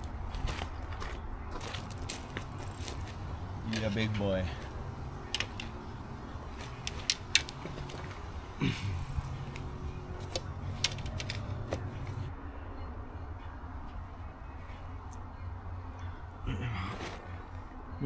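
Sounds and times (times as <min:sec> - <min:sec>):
sharp handling clicks and rustles: 0:00.0 - 0:12.3.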